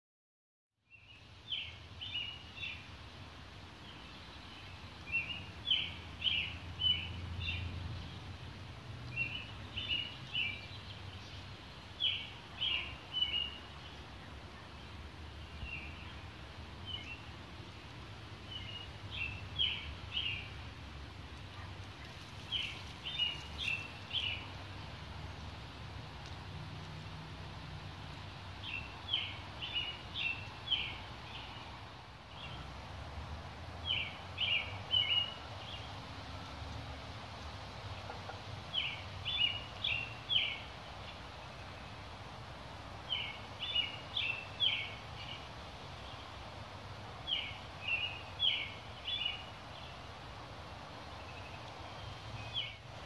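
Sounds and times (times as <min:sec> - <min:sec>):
bird chirping: 0:00.8 - 0:02.9, 0:03.8 - 0:08.4, 0:09.1 - 0:17.3, 0:18.4 - 0:20.7, 0:21.4 - 0:24.7, 0:28.6 - 0:32.7, 0:33.8 - 0:36.0, 0:37.9 - 0:41.8, 0:43.1 - 0:46.3, 0:47.3 - 0:50.0.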